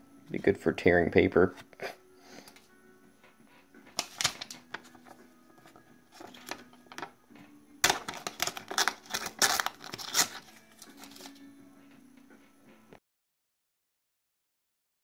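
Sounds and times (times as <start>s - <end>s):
paper rustling and tearing: 4.0s - 7.1s, 7.8s - 11.4s.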